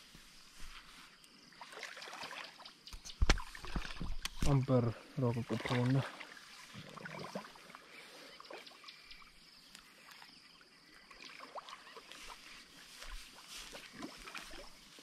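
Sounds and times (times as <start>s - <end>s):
footsteps on grass: 0.0s - 1.2s, 12.1s - 15.0s
small ticks: 9.1s - 10.2s.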